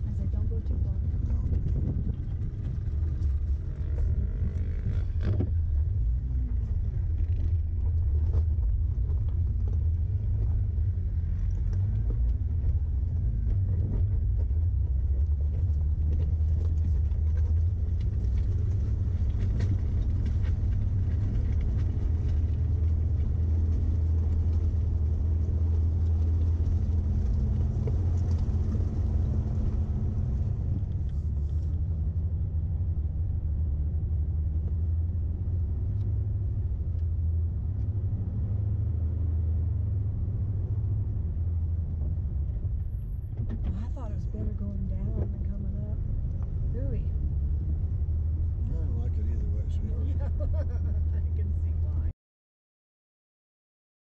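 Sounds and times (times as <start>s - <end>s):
vehicle engine rumbling: 0.0s - 52.2s.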